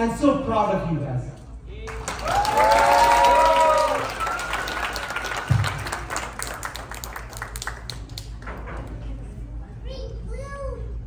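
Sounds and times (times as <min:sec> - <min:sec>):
people cheering: 0:01.8 - 0:06.2
audience applauding: 0:01.9 - 0:08.5.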